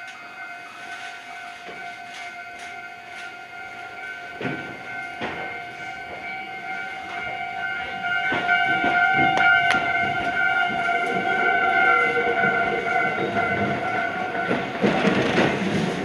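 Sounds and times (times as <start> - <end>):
level crossing warning bell: 0.0 - 16.0
train wheels clacking over rail joints: 4.2 - 16.0.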